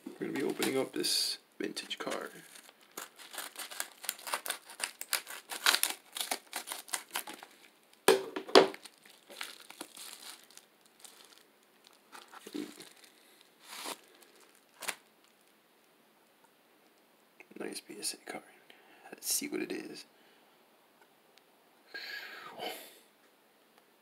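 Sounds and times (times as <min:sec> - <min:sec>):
paper wrapping crinkling: 0:00.0 - 0:01.0, 0:01.8 - 0:07.8, 0:08.7 - 0:15.5
paper envelope tearing: 0:02.0 - 0:07.6, 0:12.1 - 0:15.0.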